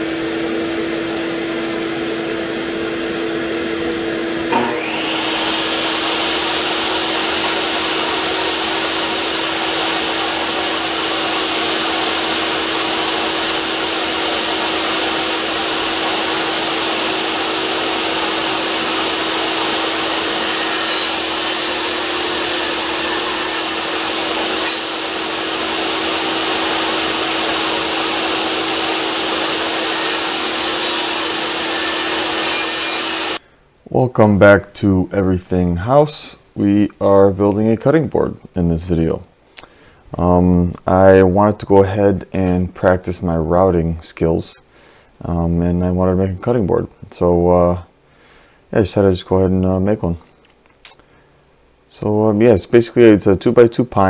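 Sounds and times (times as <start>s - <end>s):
shop vacuum and table saw drone: 0.0s - 33.4s.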